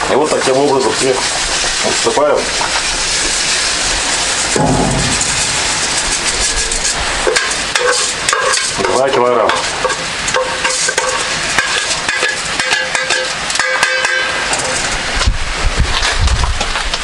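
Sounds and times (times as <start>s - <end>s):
broth sizzling and bubbling: 0.0s - 15.7s.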